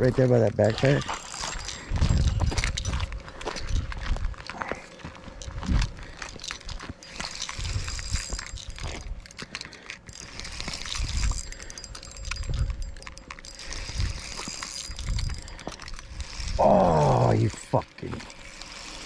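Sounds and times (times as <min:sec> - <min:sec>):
fishing reel clicking: 0:00.6 - 0:03.9, 0:05.4 - 0:19.0.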